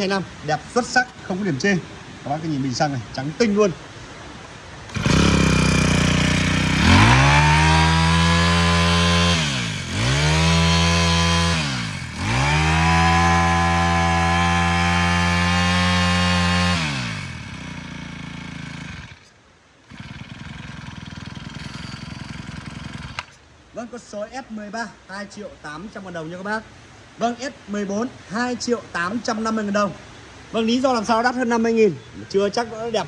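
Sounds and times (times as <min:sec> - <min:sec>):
brush cutter engine revving: 0:04.9 - 0:19.3, 0:19.9 - 0:23.4.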